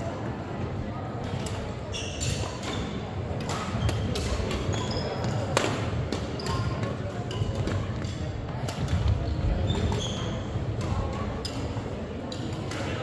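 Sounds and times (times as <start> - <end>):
rackets hitting shuttlecock: 1.2 - 10.0, 10.6 - 13.0
sneaker squeaks on wooden floor: 1.9 - 3.0, 3.7 - 5.5, 6.3 - 7.5, 9.1 - 10.6.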